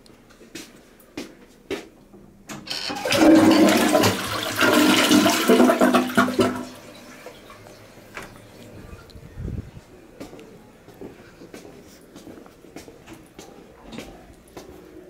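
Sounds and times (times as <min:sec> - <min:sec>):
toilet flush clicks: 0:02.5 - 0:08.5
water rushing through toilet bowl: 0:02.7 - 0:07.8.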